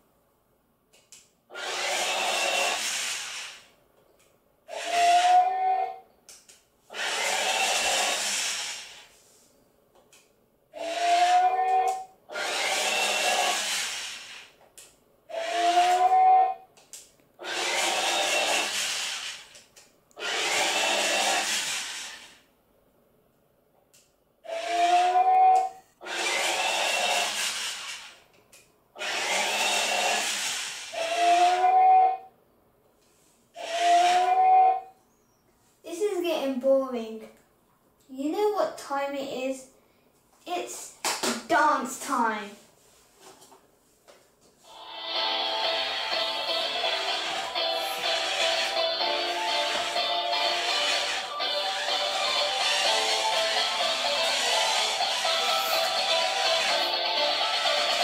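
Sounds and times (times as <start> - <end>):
toy robot hissing bursts: 1.5 - 3.7, 4.7 - 5.6, 6.9 - 9.2, 10.8 - 11.7, 12.3 - 14.6, 15.3 - 16.2, 17.4 - 19.6, 20.2 - 22.4, 24.5 - 25.2, 26.0 - 28.2, 29.0 - 31.8, 33.6 - 34.4
rising electronic whirs: 20.2 - 22.4, 26.0 - 28.2.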